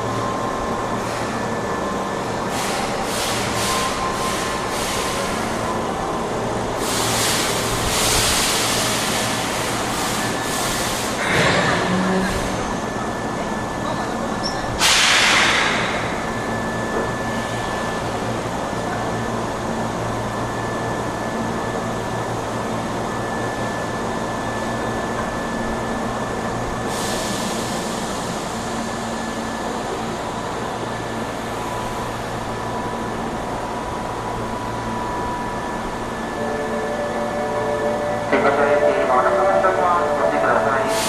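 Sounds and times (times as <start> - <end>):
air conditioning hum: 0.0 - 41.0
thin high whine: 35.0 - 41.0.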